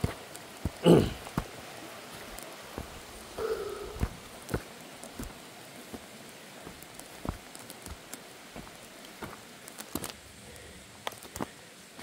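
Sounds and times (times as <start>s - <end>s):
footsteps through undergrowth: 0.0s - 10.2s
faint background hiss: 0.0s - 12.0s
twigs snapping: 6.6s - 10.2s, 11.0s - 11.5s.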